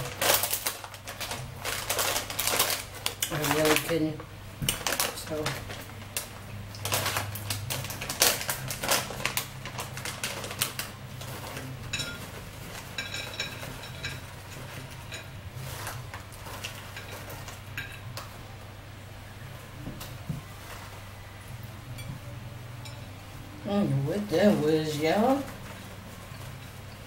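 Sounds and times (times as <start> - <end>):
plastic snack pouch crinkling: 0.0 - 11.8.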